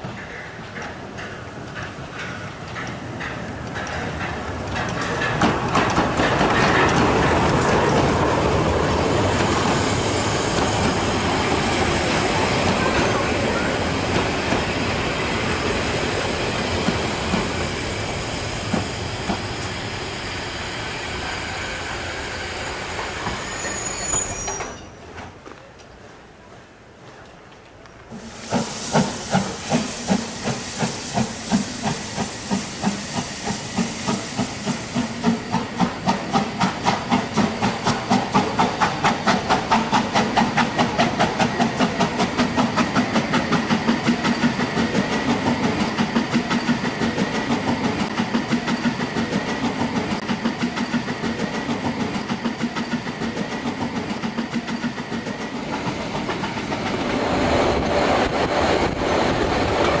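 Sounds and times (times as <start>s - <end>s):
train running on track: 0.0s - 25.4s, 26.3s - 60.0s
steam locomotive exhaust chuffs: 28.1s - 59.4s.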